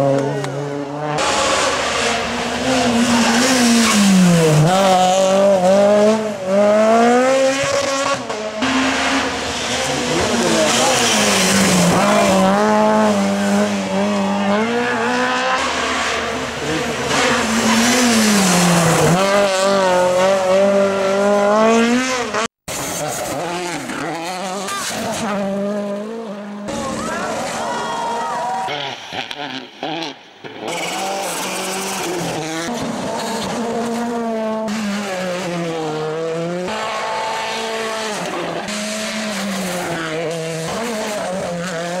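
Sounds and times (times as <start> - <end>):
rally car engines revving: 0.0 - 42.0.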